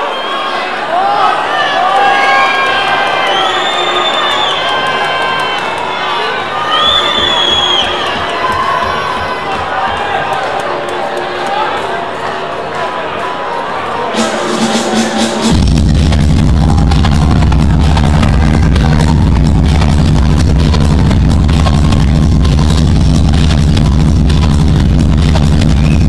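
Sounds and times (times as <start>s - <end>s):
electronic dance music: 6.2s - 26.0s.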